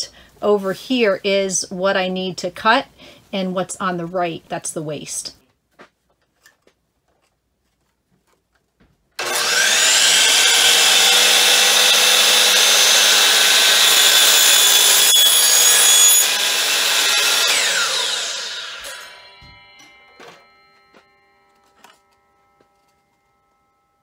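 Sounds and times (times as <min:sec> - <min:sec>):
saw blade cutting board: 0:09.2 - 0:23.1
miter saw whining: 0:09.2 - 0:24.0.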